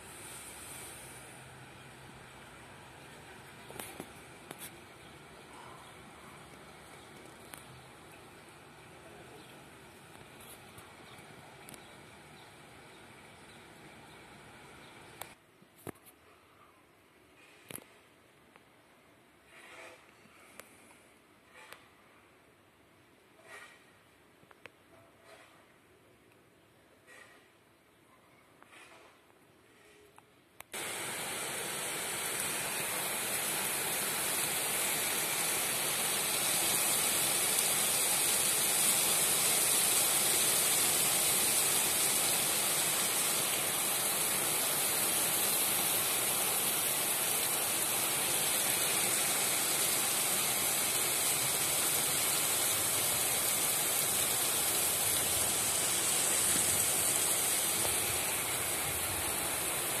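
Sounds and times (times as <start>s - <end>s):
rain falling steadily: 0.0s - 15.4s, 30.7s - 60.0s.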